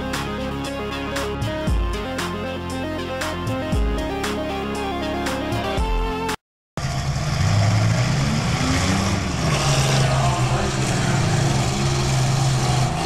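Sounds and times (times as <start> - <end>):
minivan engines revving: 6.8 - 13.0.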